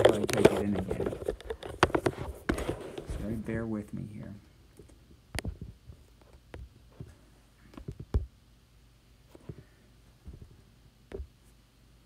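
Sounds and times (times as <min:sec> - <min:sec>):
knocks of tablet being handled: 0:00.0 - 0:02.8.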